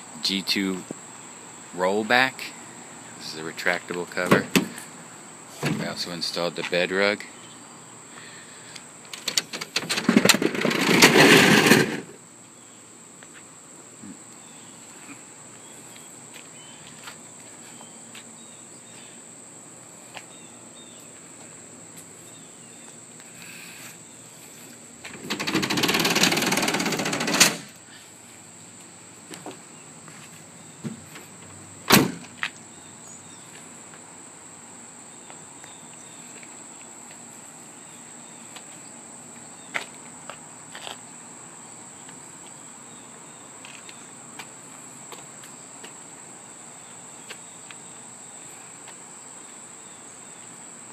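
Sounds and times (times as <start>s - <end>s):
high insect drone: 0.0s - 50.9s
cover rolling rattle on rails: 9.2s - 12.1s, 25.1s - 27.7s
scuffing noise: 15.8s - 18.3s, 28.3s - 31.5s.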